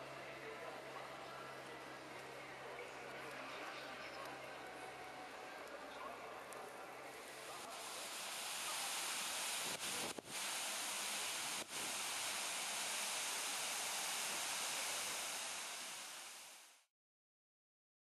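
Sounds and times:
fountain water splashing: 7.2s - 16.8s.

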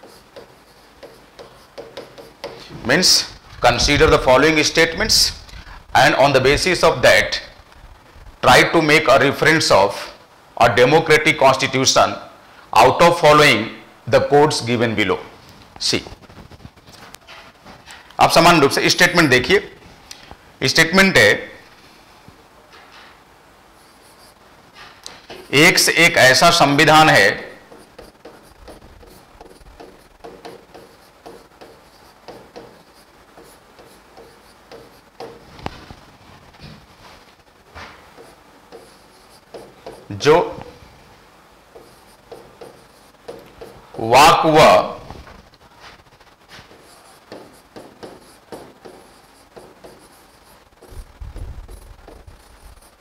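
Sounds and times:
chalk writing on blackboard: 0.0s - 2.8s, 23.8s - 24.4s, 25.3s - 25.9s, 26.5s - 35.5s, 38.1s - 40.2s, 41.7s - 44.1s, 46.5s - 53.0s.

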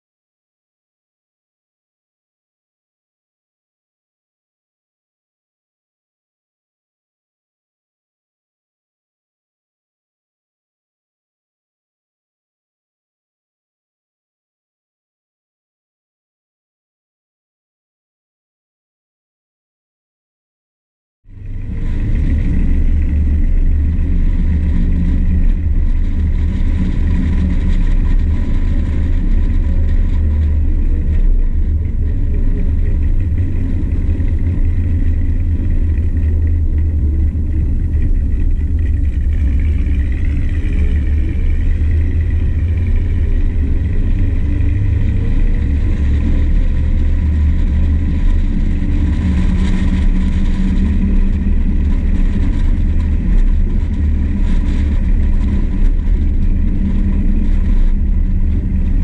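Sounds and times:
car engine deep rumble: 21.3s - 59.0s.

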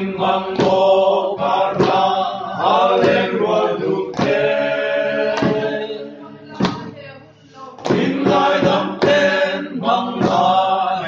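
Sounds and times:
group singing in chorus: 0.0s - 7.0s, 7.6s - 11.0s
sharp knock marking the beat: 0.2s - 4.6s, 5.3s - 5.9s, 6.6s - 6.9s, 7.8s - 10.7s.

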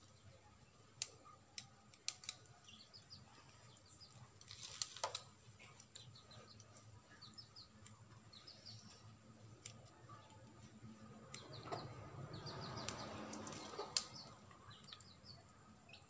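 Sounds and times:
small birds chirping: 0.0s - 16.0s
scissors snipping: 1.0s - 2.5s.

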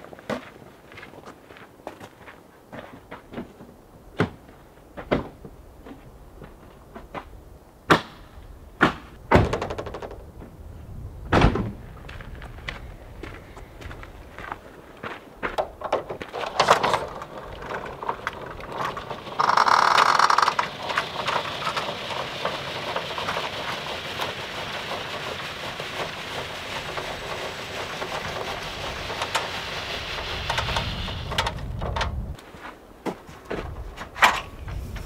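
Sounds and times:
crank mechanism whirring and ticking: 16.7s - 24.4s
loud buzzing rattle: 17.9s - 25.1s, 26.4s - 32.0s.

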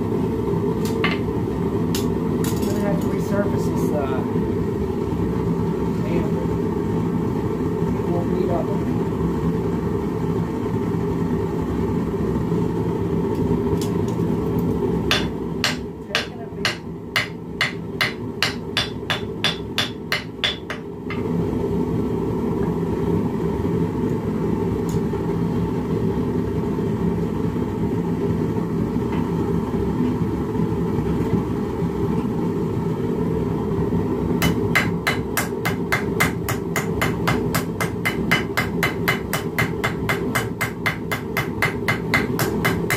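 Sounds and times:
hammer striking hot steel: 15.1s - 21.3s, 34.4s - 42.9s.

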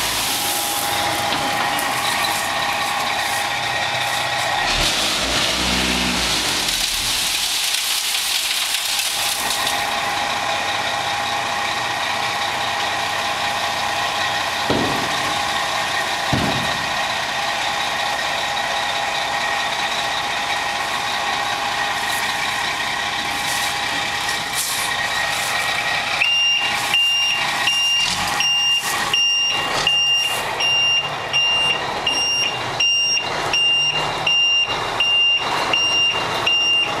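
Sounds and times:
truck engine running: 0.0s - 37.0s
back-up alarm beeping: 26.2s - 37.0s.

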